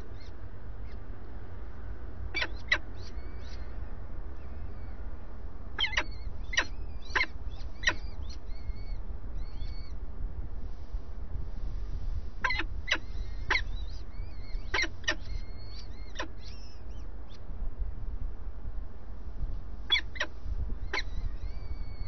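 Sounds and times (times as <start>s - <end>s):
falcon chicks begging cheeps: 2.3s - 3.7s, 5.8s - 10.0s, 12.4s - 17.0s, 19.9s - 22.0s.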